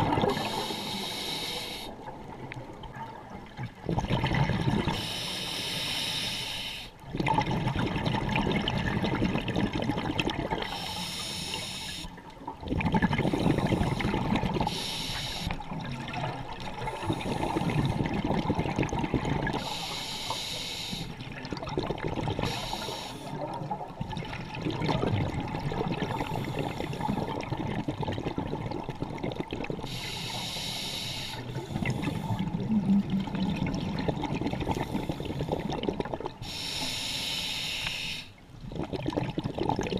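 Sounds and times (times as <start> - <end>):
exhaled bubbles burbling: 0.0 - 0.7, 2.0 - 5.0, 7.0 - 10.8, 12.2 - 14.8, 15.6 - 19.8, 21.2 - 29.9, 31.4 - 36.5, 38.6 - 39.9
regulator inhale hiss: 0.3 - 2.0, 5.0 - 6.9, 10.7 - 12.1, 13.3 - 15.6, 19.6 - 21.2, 22.4 - 23.4, 26.2 - 27.3, 29.8 - 32.4, 36.4 - 38.4.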